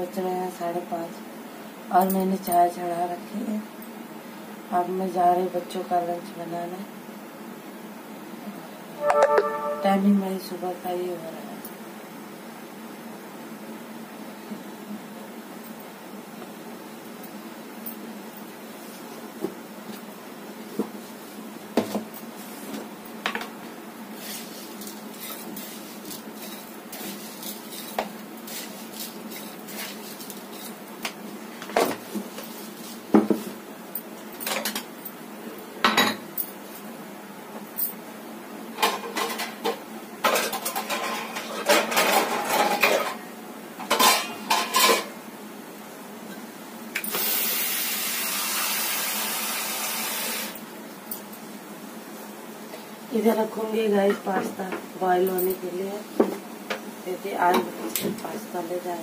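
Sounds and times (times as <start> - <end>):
water tap running: 47.2 - 50.6.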